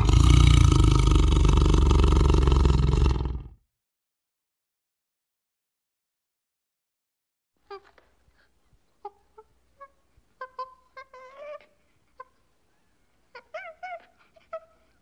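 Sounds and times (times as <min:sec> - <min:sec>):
monkeys squeaking and chirping: 0:09.0 - 0:15.0.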